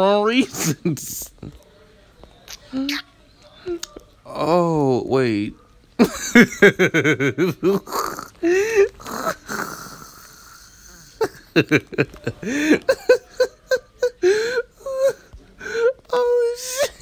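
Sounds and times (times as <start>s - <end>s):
man laughing: 6.0s - 17.0s.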